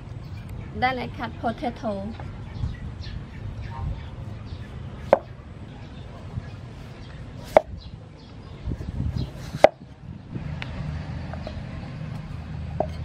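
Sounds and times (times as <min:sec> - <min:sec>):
cleaver knocking on wooden block: 0:07.4 - 0:07.7.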